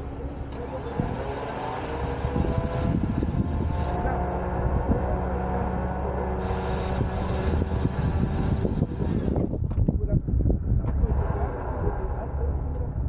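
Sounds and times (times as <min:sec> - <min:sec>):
vehicle engine running: 0:00.0 - 0:09.8.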